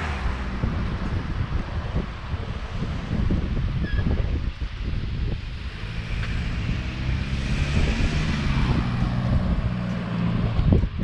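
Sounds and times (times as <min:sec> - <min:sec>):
wind buffeting microphone: 0:00.0 - 0:11.0
motor engine passing: 0:05.6 - 0:10.8.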